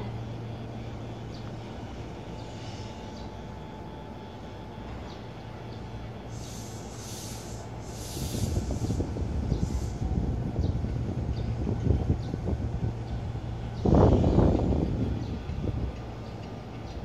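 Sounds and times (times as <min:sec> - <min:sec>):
electric train humming and rumbling: 0:00.0 - 0:17.0
train hiss bursts: 0:01.6 - 0:03.6, 0:06.0 - 0:10.5.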